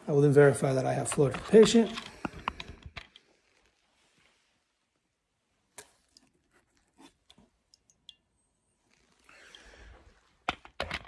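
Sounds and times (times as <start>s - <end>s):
soft rustle: 1.1s - 7.4s, 8.8s - 10.4s
fluid dripping into glass cup: 7.3s - 8.4s.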